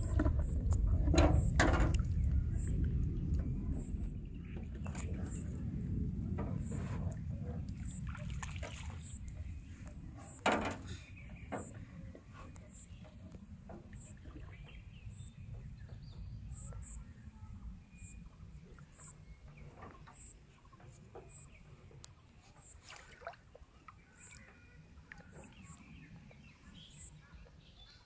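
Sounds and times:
low wind-like rumble: 0:00.0 - 0:22.0
bird calls: 0:08.9 - 0:21.8, 0:23.8 - 0:28.0.

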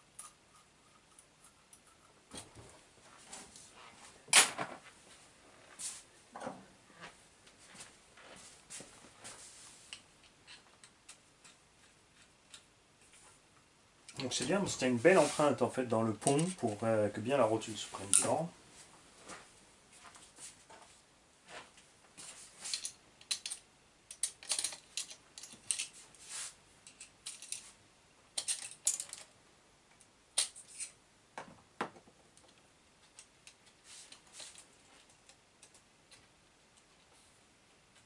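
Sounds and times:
small metal parts clicking: 0:22.7 - 0:25.9, 0:26.8 - 0:27.6, 0:28.4 - 0:29.3.

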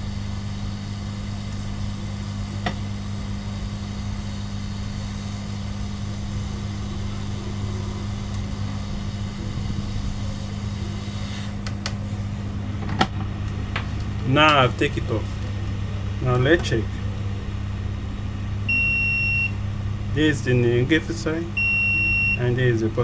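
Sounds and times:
hot-air gun blowing: 0:03.6 - 0:11.6.

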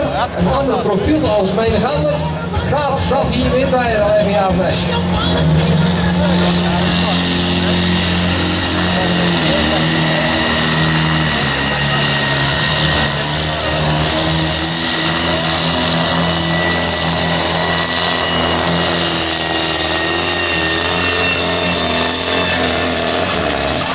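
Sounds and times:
tractor diesel engine at full load: 0:00.0 - 0:23.9
steady high whistle: 0:04.8 - 0:23.0.

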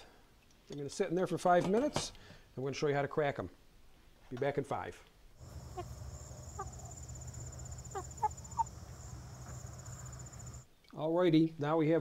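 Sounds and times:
hens calling softly: 0:05.4 - 0:10.6
insect trill: 0:05.4 - 0:10.6
low steady hum: 0:05.4 - 0:10.6.

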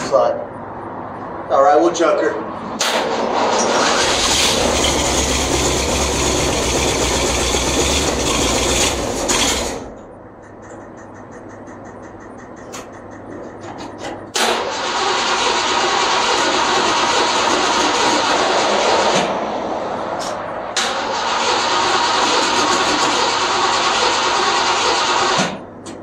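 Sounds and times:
loud motor running: 0:03.8 - 0:09.9.

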